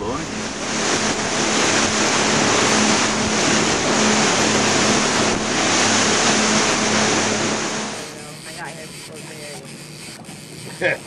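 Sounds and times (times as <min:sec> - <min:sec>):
wind and water rushing: 0:00.0 - 0:09.1
motorboat engine drone: 0:00.0 - 0:11.0.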